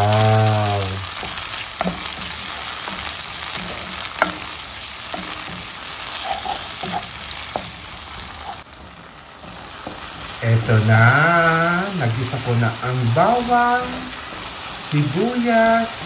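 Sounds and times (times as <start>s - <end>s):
wooden spatula stirring: 0.0s - 12.6s
vegetables sizzling in oil: 0.0s - 16.0s
spatula knocking against pan: 1.2s - 5.7s, 9.8s - 10.1s.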